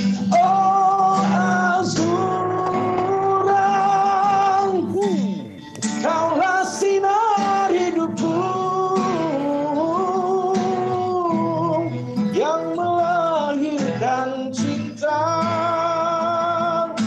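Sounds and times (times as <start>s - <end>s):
acoustic guitar: 0.0s - 17.0s
man singing a slow ballad: 0.0s - 17.0s.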